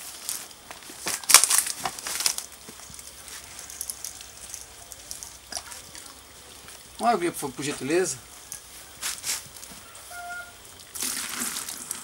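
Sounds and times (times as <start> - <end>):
spray bottle hissing sprays: 8.7 - 10.4.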